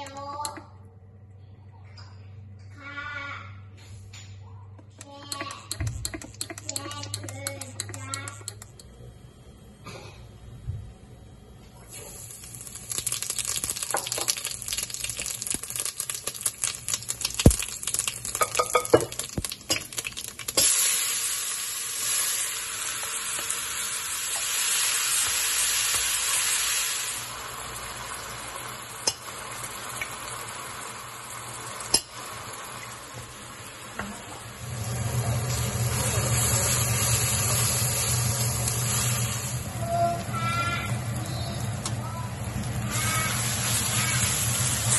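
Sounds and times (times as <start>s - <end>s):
seeds sizzling in hot oil: 11.8s - 44.9s
onions sizzling in oil: 11.9s - 44.9s.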